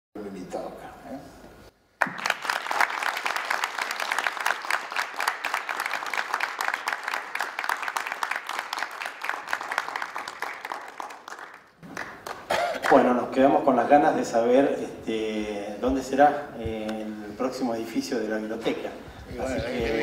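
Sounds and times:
audience applauding: 0:02.0 - 0:13.1.

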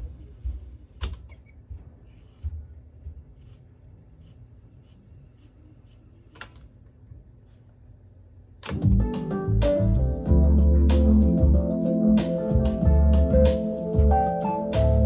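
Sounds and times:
tape deck click: 0:08.6 - 0:09.3
tape deck ticking: 0:08.6 - 0:09.9
keyboard music playback: 0:08.7 - 0:15.0.

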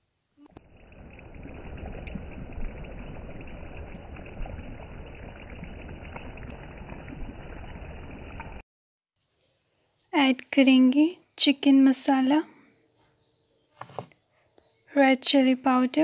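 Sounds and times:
gravy bubbling and simmering: 0:00.4 - 0:08.6.

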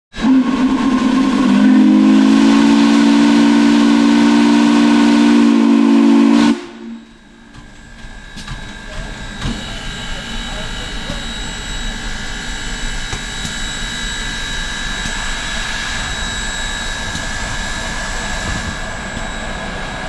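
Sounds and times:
deep steam whistle blast: 0:00.1 - 0:07.4.

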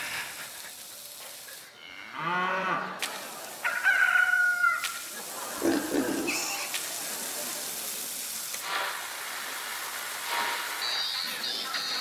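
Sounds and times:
rooster crowing: 0:03.6 - 0:05.0.

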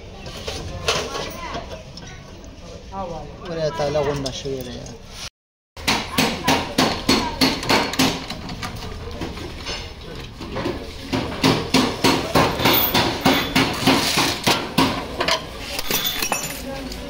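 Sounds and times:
hammer striking metal: 0:05.8 - 0:08.4, 0:11.1 - 0:15.2.

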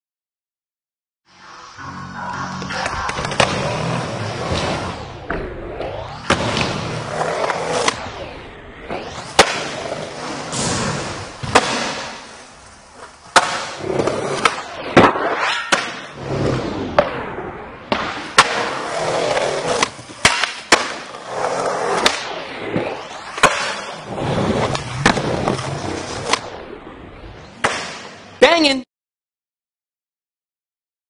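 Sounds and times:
skateboard wheels rolling on concrete: 0:02.3 - 0:28.4
skateboard clacking and landing: 0:17.9 - 0:22.2.

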